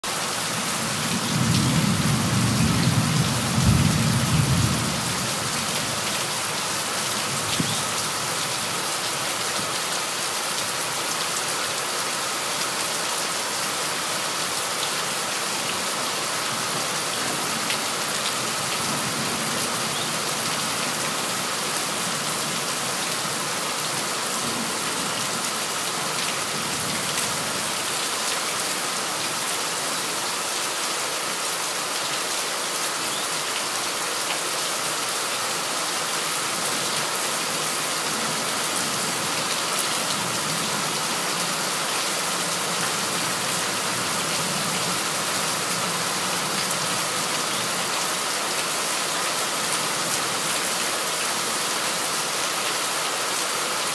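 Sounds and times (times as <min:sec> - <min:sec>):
heavy rain falling: 0:00.0 - 0:53.9.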